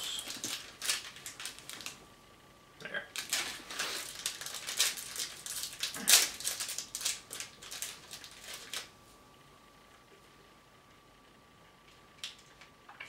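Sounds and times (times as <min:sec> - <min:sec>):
plastic wrapper crinkling: 0:00.0 - 0:02.0, 0:03.1 - 0:09.0.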